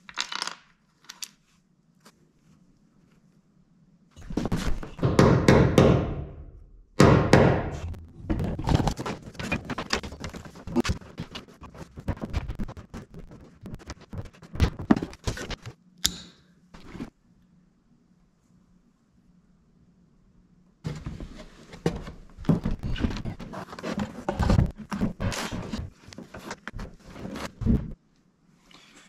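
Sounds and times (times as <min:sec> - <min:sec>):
knocks on wooden trusses: 0:04.5 - 0:11.4
cable scraping and rustling: 0:07.8 - 0:15.8, 0:20.9 - 0:28.0.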